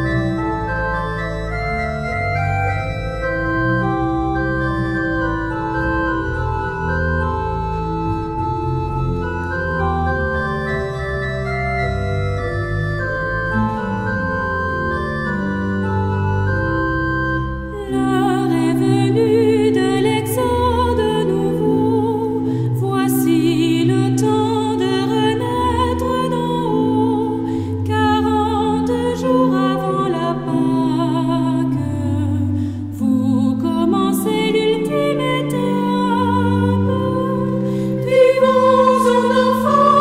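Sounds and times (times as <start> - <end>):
church organ chords: 0.0 - 40.0
people singing a hymn: 35.4 - 40.0.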